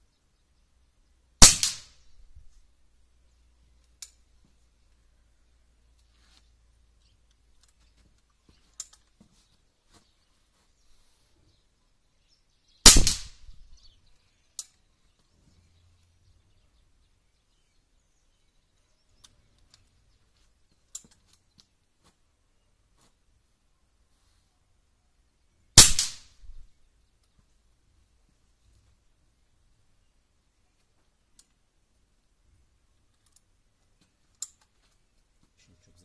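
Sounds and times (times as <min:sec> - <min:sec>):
air rifle shot: 0:01.4 - 0:02.0, 0:12.8 - 0:13.6, 0:25.8 - 0:26.6.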